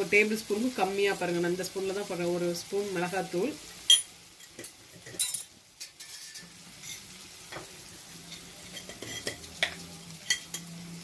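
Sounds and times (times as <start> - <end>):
vegetables sizzling in oil: 0.0 - 11.0
spoon clinking against pot: 8.7 - 10.7.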